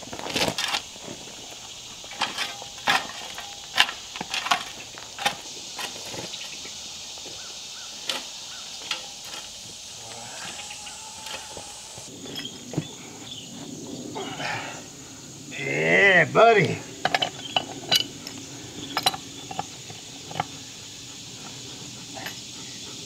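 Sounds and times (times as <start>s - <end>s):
shovel scraping soil: 0.0s - 6.5s
steady high hiss: 0.0s - 23.0s.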